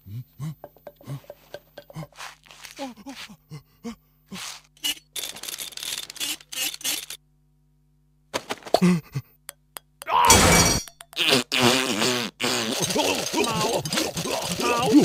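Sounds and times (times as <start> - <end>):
scratchy sand digging bursts: 2.0 - 3.4, 4.3 - 5.1, 11.3 - 15.0
loud cry: 10.1 - 10.5.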